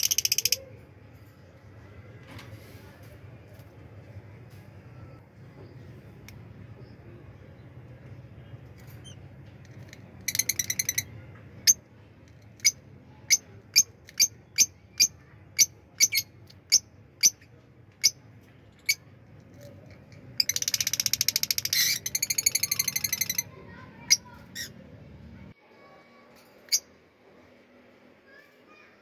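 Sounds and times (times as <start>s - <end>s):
lovebirds chattering and chirping: 12.6s - 19.0s, 19.6s - 24.9s.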